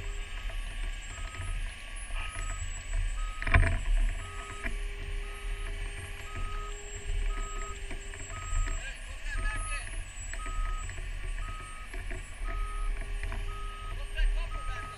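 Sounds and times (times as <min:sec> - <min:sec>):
electronic warning beeps: 0:00.0 - 0:14.9
fire engine rumbling: 0:00.0 - 0:14.9.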